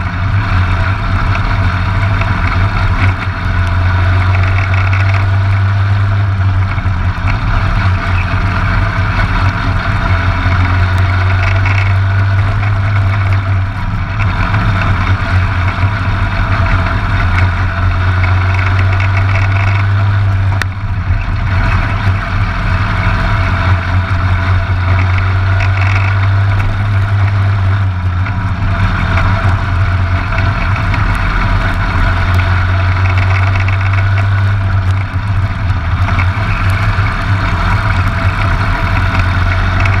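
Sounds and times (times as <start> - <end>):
kart engine running hard: 0.0 - 40.0.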